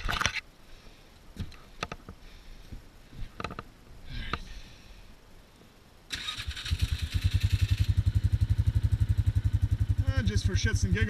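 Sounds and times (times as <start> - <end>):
engine starting and idling: 6.1 - 10.8.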